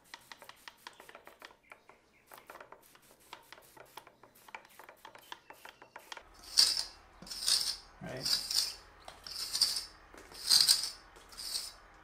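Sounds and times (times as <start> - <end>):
spray bottle hissing sprays: 0.0 - 1.6, 2.2 - 7.5
spray bottle clicks and scrapes: 0.0 - 7.5.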